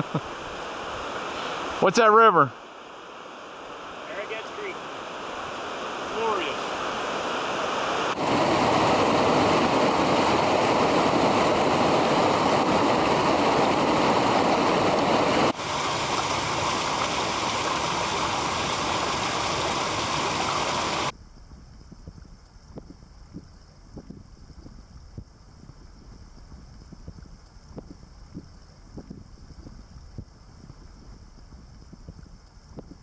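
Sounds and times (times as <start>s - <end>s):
creek whitewater rushing: 0.0s - 21.1s.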